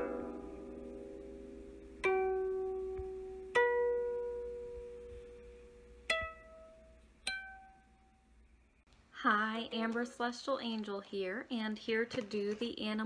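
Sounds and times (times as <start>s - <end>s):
plucked string instrument notes: 0.0s - 8.0s.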